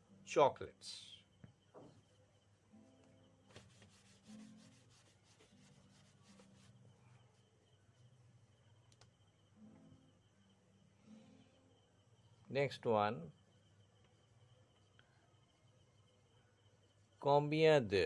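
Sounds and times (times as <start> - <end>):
whiteboard being wiped: 3.5 - 6.8.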